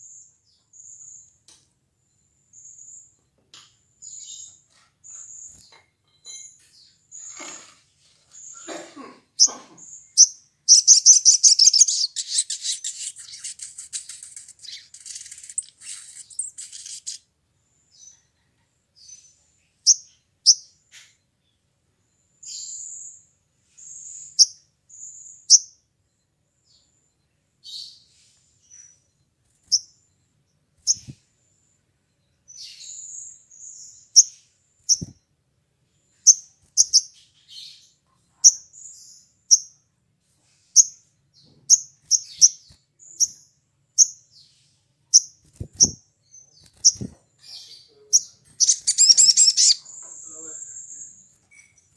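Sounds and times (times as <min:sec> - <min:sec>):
bird trilling and chipping: 0:09.4 - 0:17.2, 0:19.8 - 0:21.1, 0:29.6 - 0:30.0, 0:30.8 - 0:31.2, 0:32.5 - 0:35.2, 0:36.2 - 0:39.8, 0:40.8 - 0:43.4, 0:44.0 - 0:44.2, 0:45.1 - 0:51.9.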